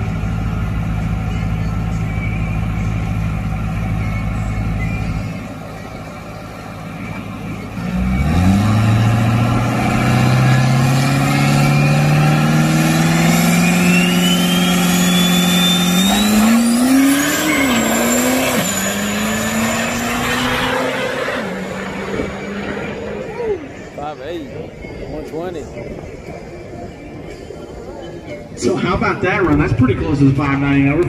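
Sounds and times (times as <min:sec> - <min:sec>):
diesel truck engine at full throttle: 0:00.0 - 0:26.4
turbo whistle: 0:13.2 - 0:20.8.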